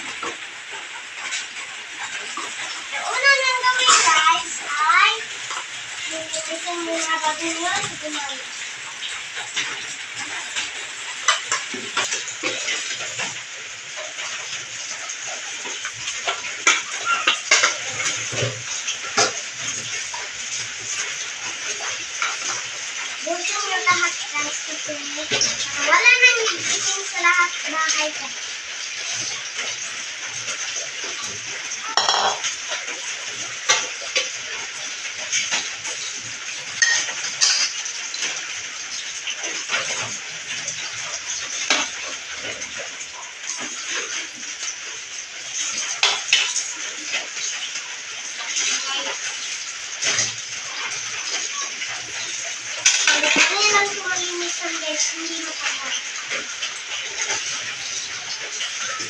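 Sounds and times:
tap water running into sink: 0.0s - 59.0s
ceramic plates clinking: 31.9s - 32.4s
dishes clinking: 31.9s - 32.5s, 36.8s - 37.8s.

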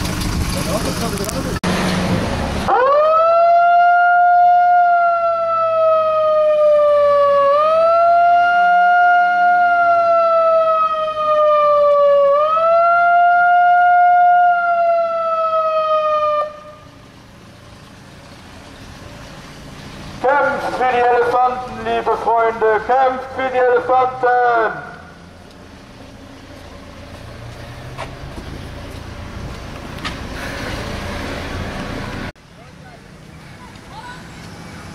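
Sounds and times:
siren wailing: 2.7s - 16.9s.

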